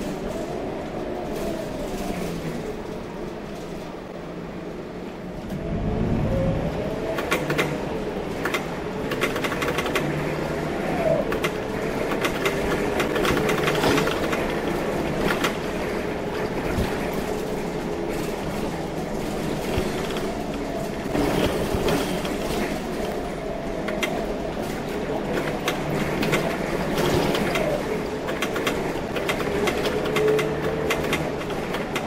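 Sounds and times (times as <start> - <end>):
bus diesel engine: 0.0 - 32.0
rattles and clicks in cab: 7.1 - 32.0.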